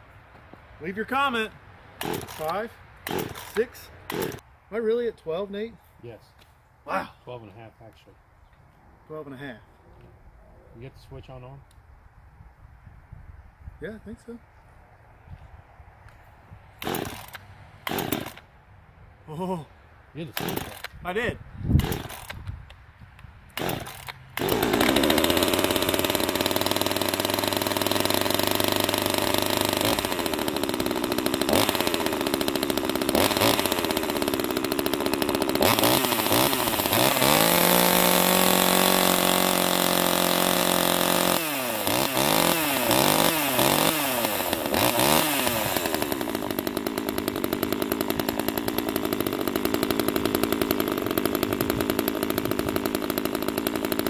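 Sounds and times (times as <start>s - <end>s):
chainsaw starting and revving: 2.0s - 4.4s, 16.8s - 18.5s, 20.2s - 21.0s, 21.8s - 22.4s, 23.5s - 54.0s.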